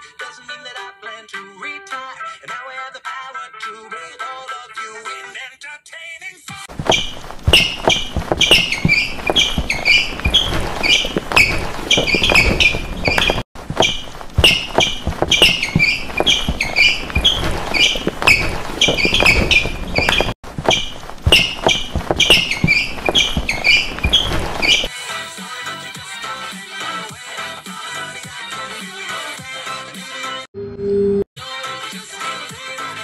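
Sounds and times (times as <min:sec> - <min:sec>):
high squeaky chirps: 0:06.8 - 0:24.9.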